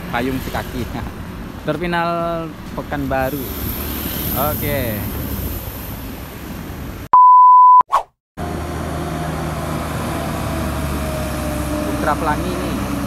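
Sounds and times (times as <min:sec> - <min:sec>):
low rumble of bus terminal: 0:00.0 - 0:07.1, 0:08.4 - 0:13.0
electronic beep: 0:07.1 - 0:07.8.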